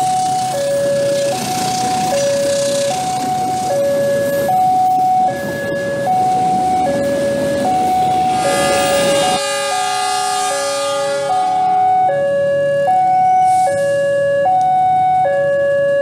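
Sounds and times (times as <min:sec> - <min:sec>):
train rumbling past: 0:00.0 - 0:04.6, 0:05.4 - 0:12.4
steady electronic tones: 0:00.0 - 0:13.5
level crossing two-tone alarm: 0:00.0 - 0:16.0.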